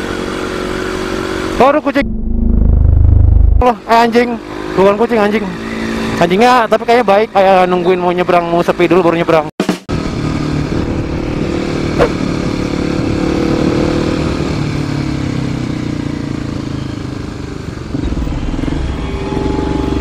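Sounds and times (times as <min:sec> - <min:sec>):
motorcycle engine running: 0:00.0 - 0:04.9, 0:09.9 - 0:20.0
road and wind noise: 0:00.0 - 0:20.0.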